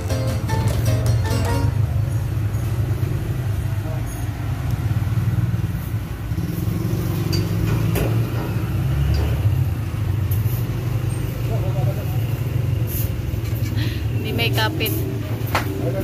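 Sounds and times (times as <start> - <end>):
sharp knocks: 0.0 - 1.8.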